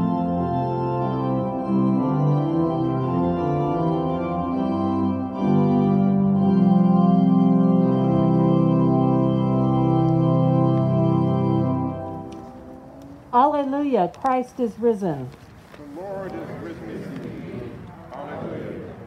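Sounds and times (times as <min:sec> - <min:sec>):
organ playing sustained chords: 0:00.0 - 0:13.5.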